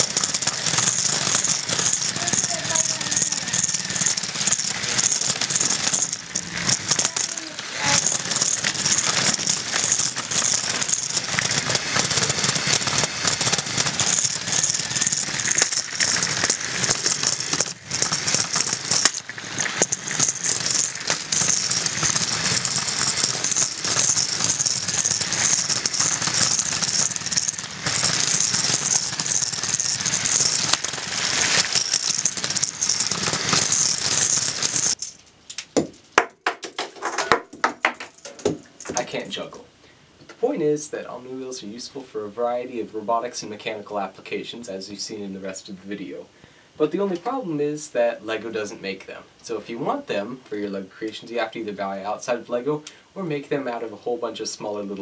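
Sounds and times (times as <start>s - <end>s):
toy car plastic wheel rattle: 0.0s - 39.6s.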